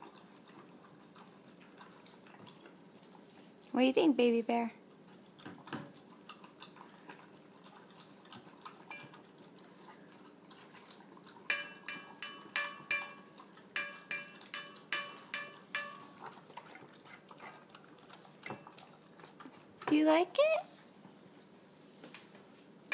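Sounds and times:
dogs licking food: 0.0s - 3.6s, 4.2s - 12.3s, 16.0s - 21.7s
metal bowls clinking: 8.9s - 9.2s, 11.5s - 16.3s.

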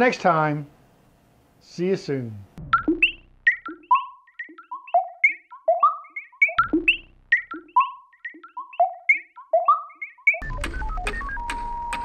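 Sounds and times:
synthesizer melody: 2.6s - 12.0s.

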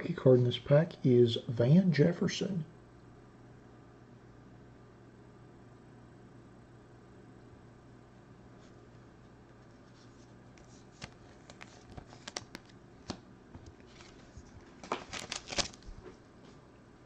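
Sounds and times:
cards clicking and rustling: 10.6s - 15.9s
foil packs crinkling: 10.9s - 12.7s, 13.8s - 16.1s.

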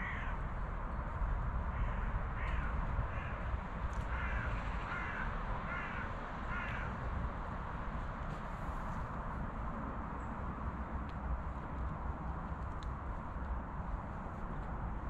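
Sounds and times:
crow cawing: 0.0s - 0.4s, 1.7s - 3.4s, 4.0s - 7.0s.

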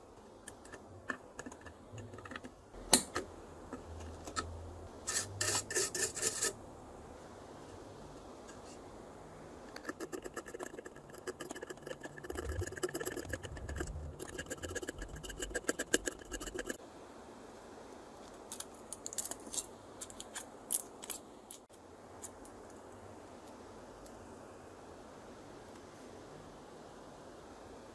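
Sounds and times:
knife blade scraping circuit board: 4.3s - 6.6s, 9.8s - 16.8s.

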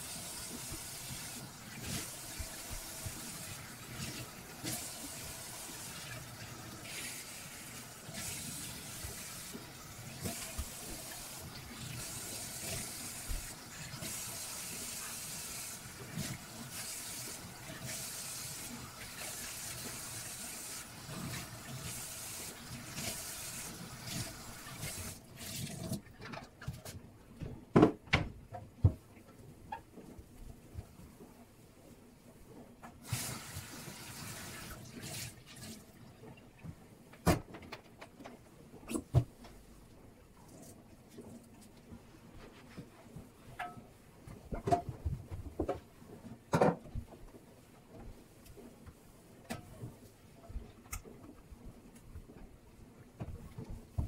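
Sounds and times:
sponge scrubbing sink: 0.0s - 26.0s, 33.0s - 35.9s.

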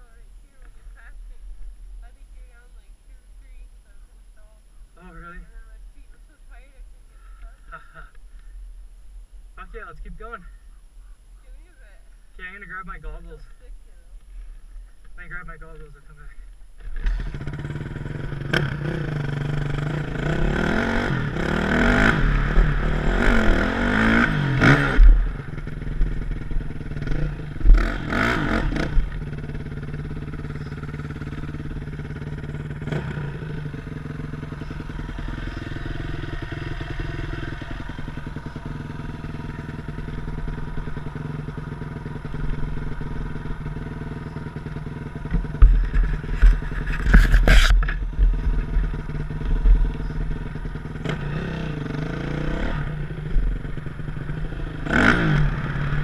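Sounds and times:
dirt bike engine idling: 0.0s - 56.0s
dirt bike engine revving: 16.8s - 56.0s.

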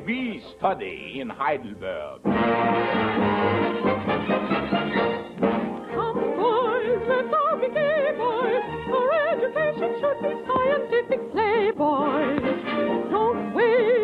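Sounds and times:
orchestra: 2.2s - 14.0s
soprano singing with vibrato: 5.8s - 14.0s.

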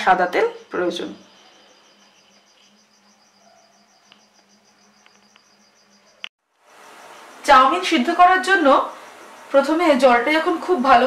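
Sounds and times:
cricket chirping: 0.0s - 11.0s.

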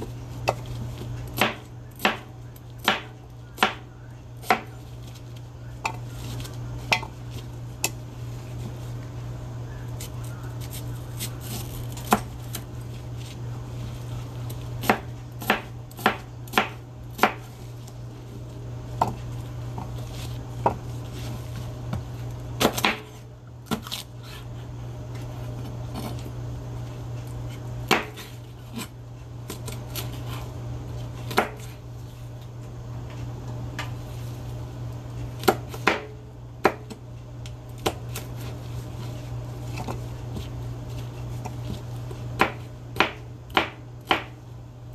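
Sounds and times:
knife chopping on cutting board: 1.4s - 3.8s, 14.8s - 17.6s, 27.9s - 28.9s, 31.3s - 31.8s, 35.4s - 37.0s, 42.4s - 44.4s.

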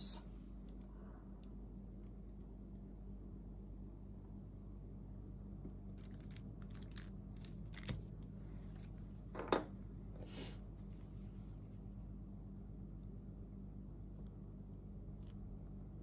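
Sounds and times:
small clicks and rustles: 5.8s - 9.0s.

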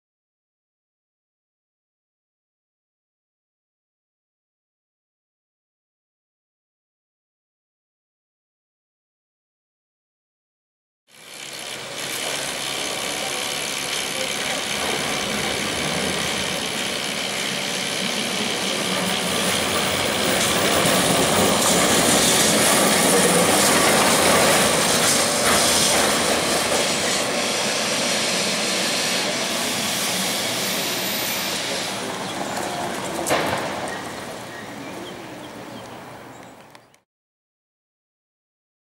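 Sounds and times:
tram rumbling on rails: 11.1s - 36.8s
street noise: 11.1s - 37.0s.

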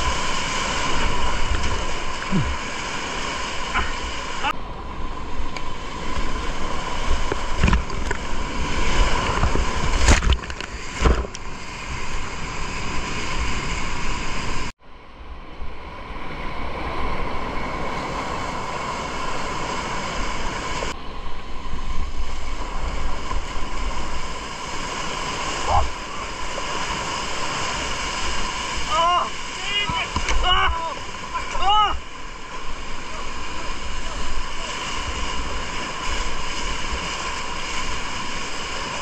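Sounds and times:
whitewater rapids rushing: 0.0s - 10.2s, 21.8s - 39.0s
water hitting camera: 7.0s - 11.6s, 28.4s - 32.1s.

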